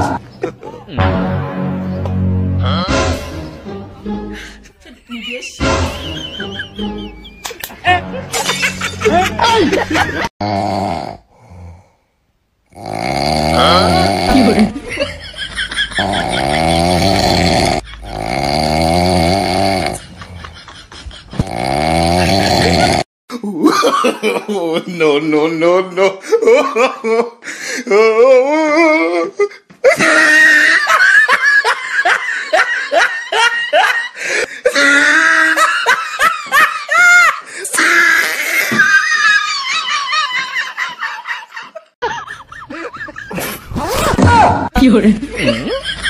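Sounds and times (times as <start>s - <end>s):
person laughing: 4.4s - 10.3s, 13.6s - 18.3s, 19.9s - 24.8s, 28.8s - 44.5s.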